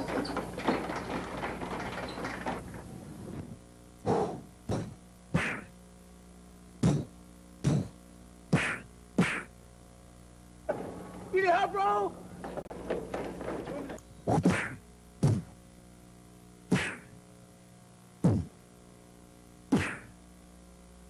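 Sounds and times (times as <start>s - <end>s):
sharp punch whacks: 16.7s - 17.1s, 19.7s - 20.1s.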